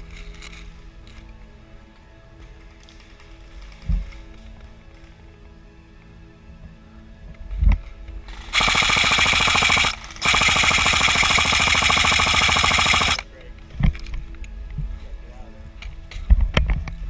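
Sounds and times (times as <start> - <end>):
airsoft gun firing full auto: 8.4 - 13.2.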